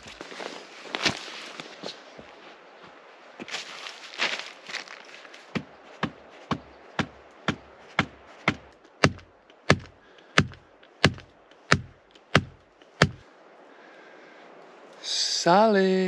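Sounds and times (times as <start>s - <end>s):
axe pounding a wooden stake: 5.6s - 13.2s.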